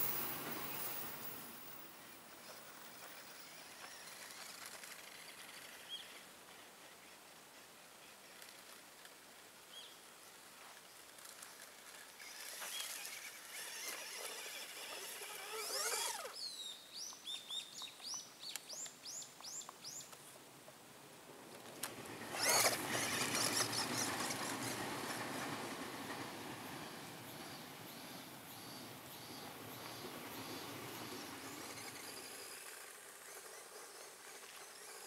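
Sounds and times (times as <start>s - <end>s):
train passing rumble: 0.0s - 2.0s, 22.0s - 31.9s
electric motor whining: 12.3s - 16.4s, 22.2s - 24.4s
bird chirping: 15.4s - 20.2s.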